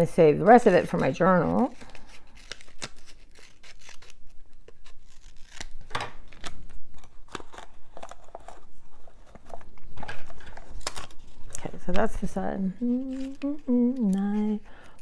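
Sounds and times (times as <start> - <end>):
paper crinkling: 0.8 - 15.0
scissors snipping paper: 0.9 - 8.6.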